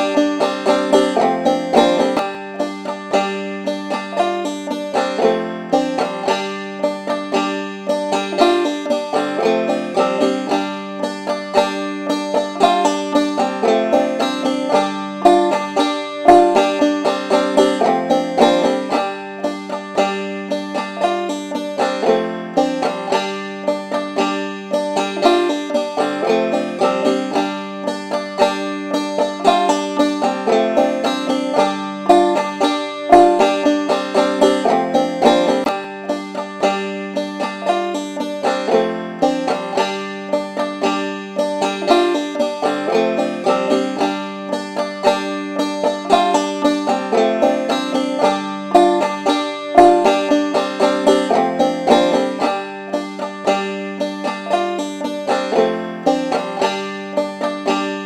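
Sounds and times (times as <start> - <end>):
banjo picking: 0.0 - 58.0.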